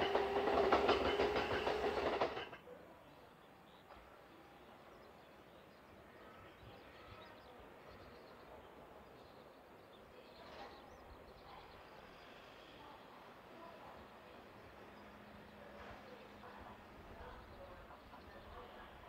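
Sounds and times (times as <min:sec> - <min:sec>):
faint bird chirps: 0:03.0 - 0:19.0.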